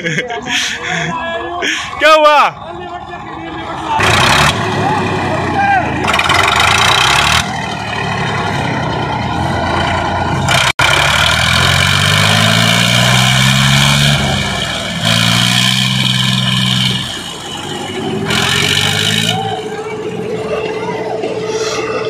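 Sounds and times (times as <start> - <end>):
tractor diesel engines labouring: 0.0 - 22.0.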